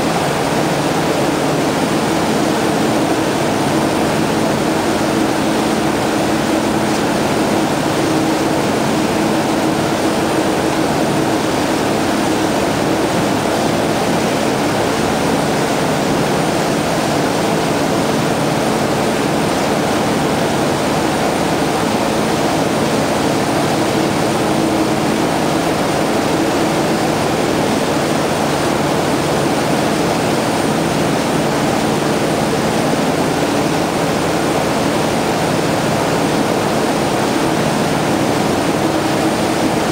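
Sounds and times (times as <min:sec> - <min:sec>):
rush of churning wake: 0:00.0 - 0:39.9.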